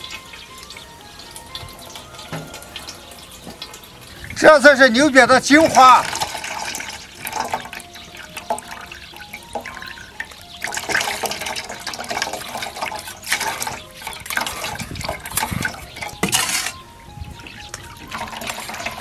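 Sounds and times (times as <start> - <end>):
liquid pouring through strainer: 6.0 - 16.8, 18.0 - 19.0.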